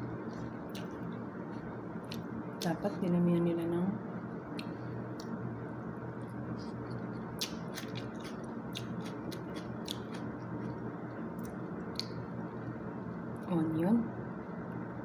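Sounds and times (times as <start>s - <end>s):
person chewing food: 0.0s - 2.7s, 6.1s - 12.7s
steady background hum: 0.0s - 15.0s
mouth clicks and smacks: 6.6s - 10.3s, 11.4s - 12.2s.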